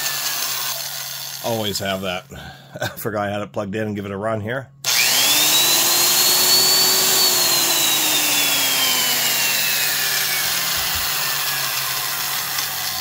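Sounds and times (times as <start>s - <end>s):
drill whining and spinning down: 0.0s - 1.4s, 4.8s - 13.0s.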